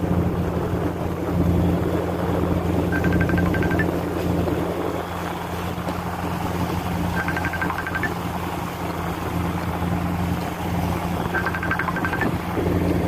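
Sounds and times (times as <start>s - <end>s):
boat engine humming: 0.0s - 13.0s
water: 0.0s - 13.0s
short high beeps: 2.9s - 3.9s, 7.2s - 8.2s, 11.2s - 12.4s.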